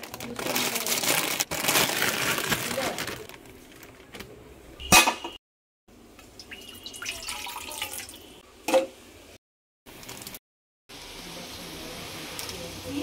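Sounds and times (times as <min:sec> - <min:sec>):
water pouring into frying pan: 0:06.4 - 0:08.4.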